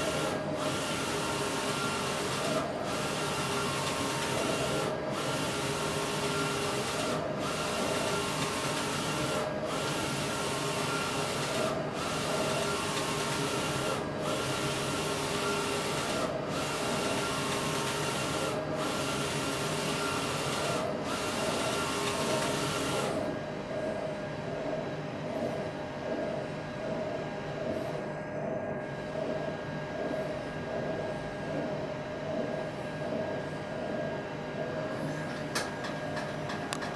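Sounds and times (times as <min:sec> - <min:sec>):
inkjet printer running: 0:00.0 - 0:24.0.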